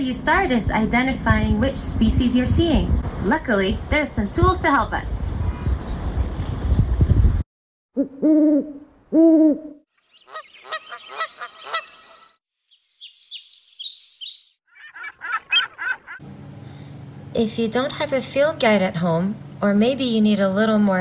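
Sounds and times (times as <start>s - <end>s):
songbird chips and chirps: 10.0s - 15.1s.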